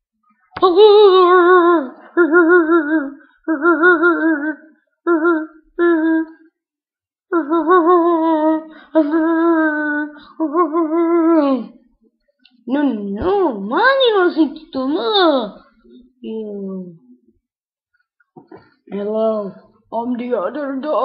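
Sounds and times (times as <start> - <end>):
person humming with vibrato: 0.8 - 6.4.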